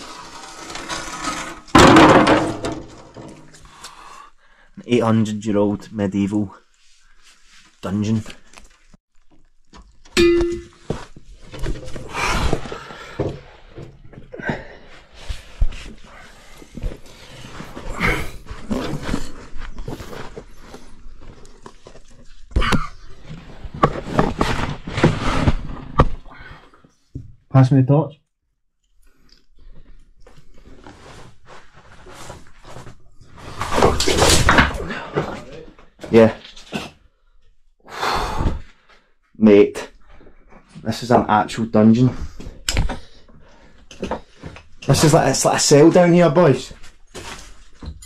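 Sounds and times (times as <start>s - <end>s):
scraping: 0.0s - 3.7s, 23.1s - 26.2s
sharp metallic clank: 10.2s - 10.9s.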